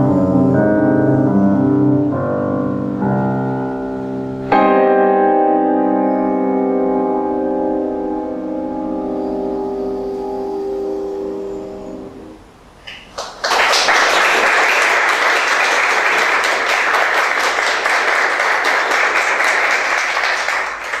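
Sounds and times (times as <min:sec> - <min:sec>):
piano chord: 0:00.0 - 0:12.5
audience applause: 0:12.9 - 0:21.0.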